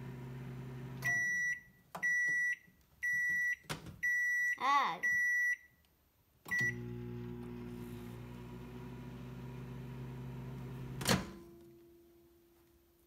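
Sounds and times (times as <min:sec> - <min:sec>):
microwave humming: 0:00.0 - 0:01.4, 0:06.5 - 0:11.6
microwave keypad beep: 0:01.0 - 0:05.7, 0:06.5 - 0:06.9.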